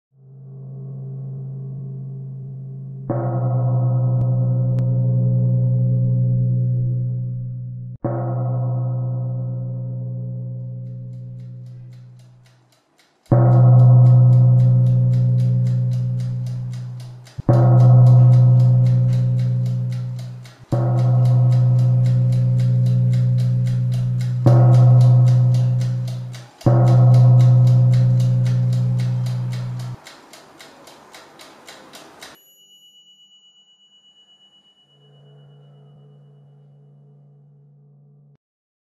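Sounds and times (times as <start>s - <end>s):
deep ringing struck tones: 0.2s - 12.4s, 13.3s - 30.0s
fast even ticking: 10.9s - 32.4s.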